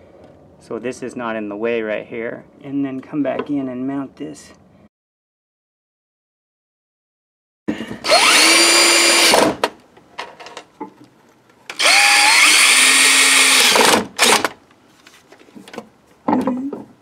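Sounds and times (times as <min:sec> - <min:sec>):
cordless drill whining: 0:08.0 - 0:09.6, 0:11.7 - 0:14.5.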